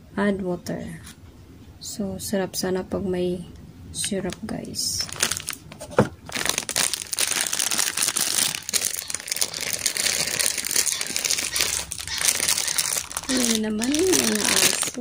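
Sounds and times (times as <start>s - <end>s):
plastic packaging crinkling: 4.3s - 15.0s.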